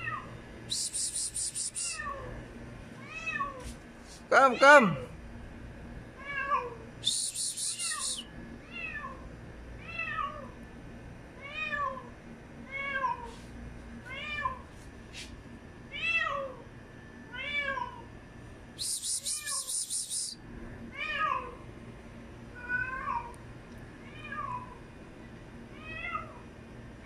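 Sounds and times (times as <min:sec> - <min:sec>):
high hissing noise: 0:00.7 - 0:02.0, 0:07.0 - 0:08.2, 0:18.8 - 0:20.4
cat meowing: 0:07.7 - 0:09.2.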